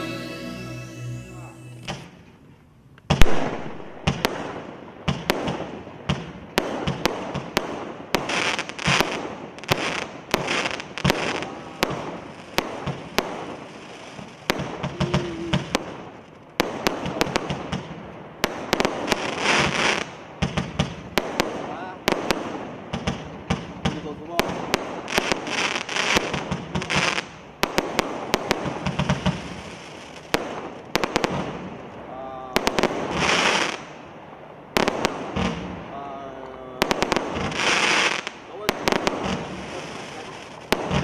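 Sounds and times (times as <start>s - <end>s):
firework shots: 3.1s - 34.1s, 34.7s - 41.0s
hiss of bursting fireworks: 3.1s - 41.0s.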